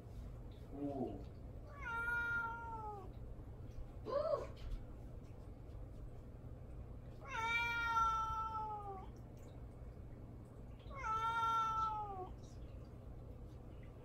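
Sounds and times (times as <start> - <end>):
cat meowing: 1.7 - 3.1, 7.2 - 9.1, 10.9 - 12.3.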